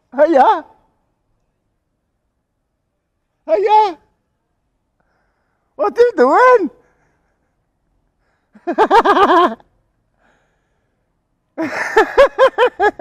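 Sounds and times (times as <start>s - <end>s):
man giggling: 11.6s - 13.0s.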